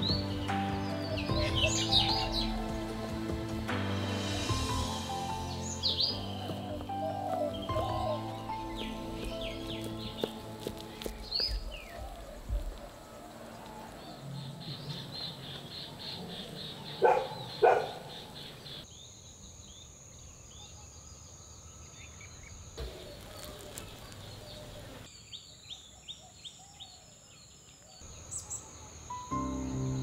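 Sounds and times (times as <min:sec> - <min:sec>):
music: 0:00.0 - 0:11.6, 0:29.1 - 0:30.0
high insect drone: 0:00.0 - 0:16.8
insects buzzing: 0:00.0 - 0:20.6
birds chirping: 0:00.0 - 0:30.0.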